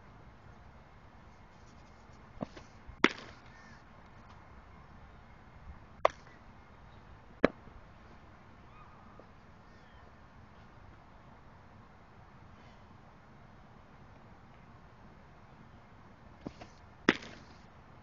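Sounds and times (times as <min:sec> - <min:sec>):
baseball smacking into glove: 0:02.4 - 0:03.4, 0:16.4 - 0:17.5.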